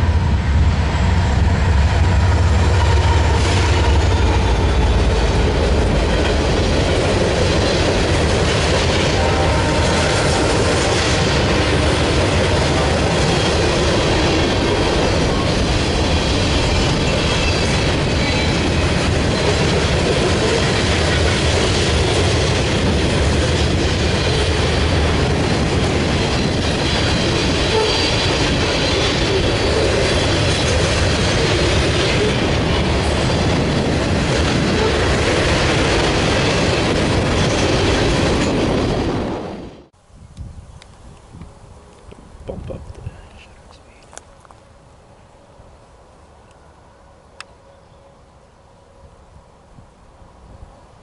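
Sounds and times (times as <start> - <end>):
freight cars rumbling on rails: 0.0 - 40.0.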